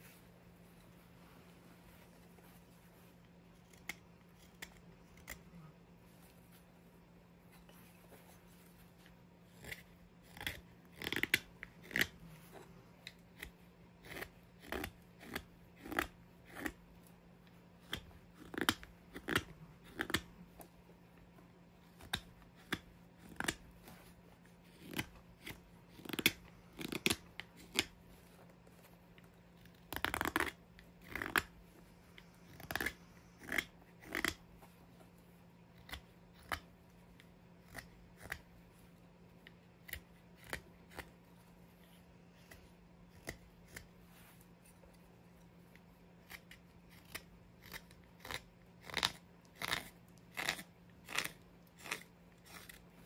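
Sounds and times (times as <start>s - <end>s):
carving knife slicing wood: 9.5s - 12.2s, 13.1s - 16.8s, 32.3s - 34.4s, 37.6s - 38.5s, 39.8s - 41.1s, 42.4s - 43.9s, 46.2s - 52.8s.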